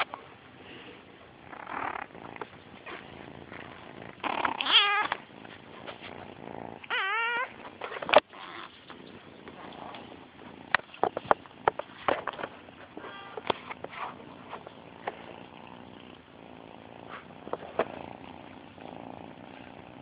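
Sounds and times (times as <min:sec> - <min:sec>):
kitten meowing: 0:04.5 - 0:05.1, 0:06.8 - 0:07.6.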